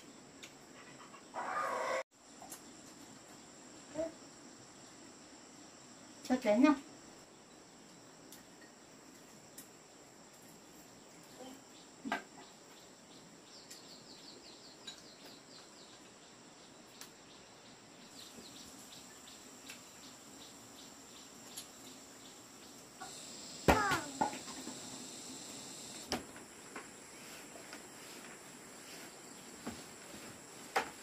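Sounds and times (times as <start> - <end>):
insects buzzing: 1.6 - 31.0.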